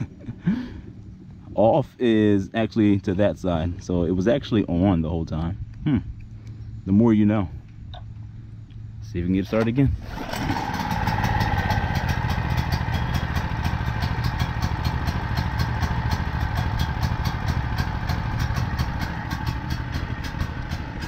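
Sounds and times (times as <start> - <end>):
generator engine running: 8.1 - 21.0.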